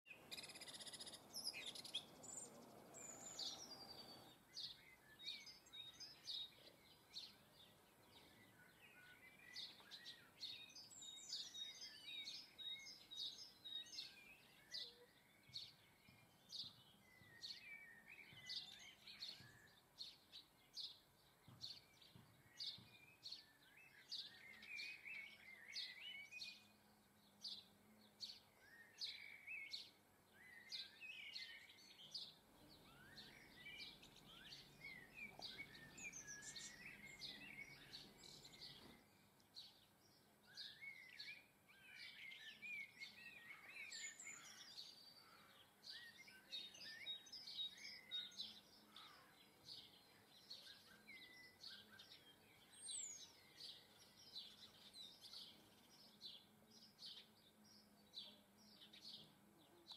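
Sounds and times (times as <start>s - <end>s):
songbirds chirping: 0.0s - 59.9s.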